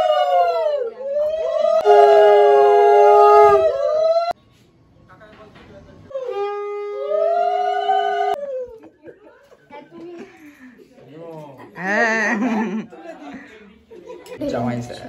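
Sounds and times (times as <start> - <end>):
conch shell blown: 1.8 - 3.9
women ululating: 6.1 - 9.1.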